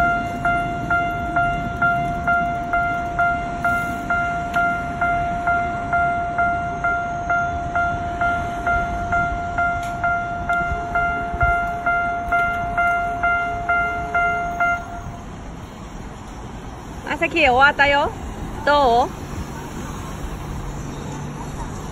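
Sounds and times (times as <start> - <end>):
level-crossing alarm bell: 0.0 - 15.4.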